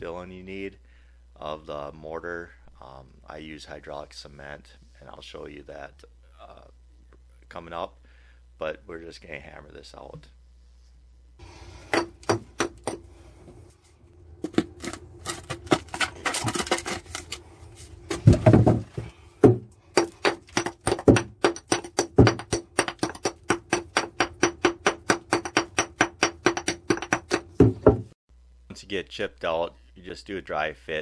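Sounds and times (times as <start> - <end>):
hammer striking concrete block: 11.9 - 13.1, 18.2 - 18.8, 19.4 - 28.1.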